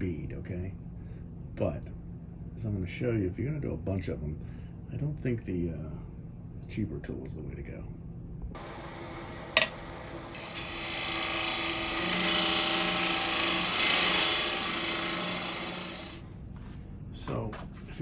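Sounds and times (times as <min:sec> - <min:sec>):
lathe humming: 0:08.6 - 0:16.2
tool scraping wood shavings: 0:10.4 - 0:16.2.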